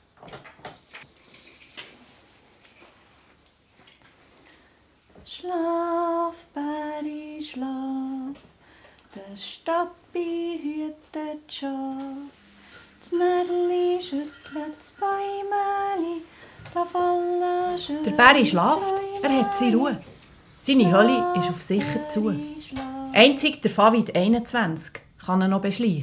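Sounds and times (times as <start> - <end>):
woman singing slow melody: 5.2 - 8.4, 9.1 - 12.4, 13.0 - 23.9.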